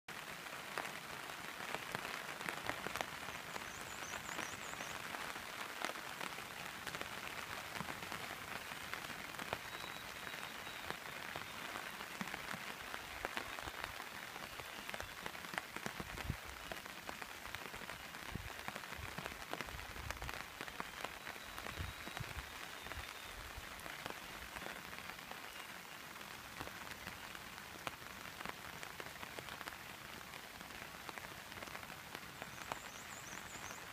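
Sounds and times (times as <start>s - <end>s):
rain falling on water: 0.1s - 33.9s.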